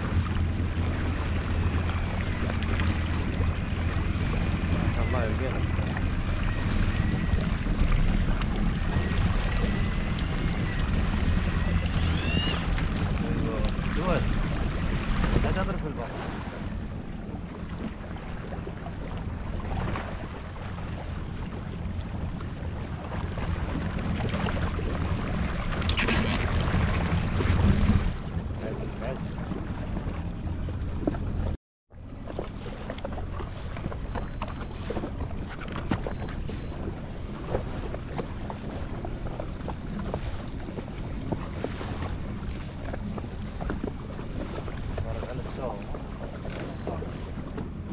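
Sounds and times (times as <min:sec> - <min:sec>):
water rushing: 0:00.0 - 0:31.2
jet ski engine running: 0:00.0 - 0:47.9.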